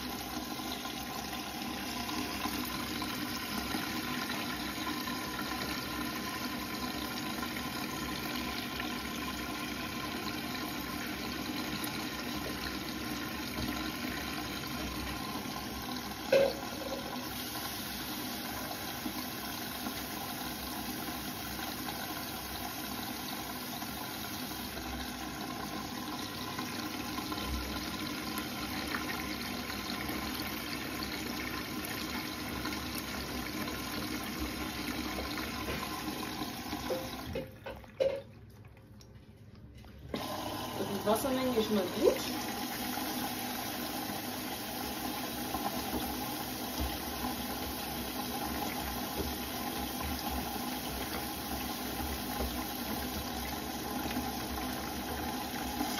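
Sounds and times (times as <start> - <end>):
washing machine filling with water: 0.0 - 55.9
water sloshing in drum: 33.8 - 40.2, 45.7 - 55.9.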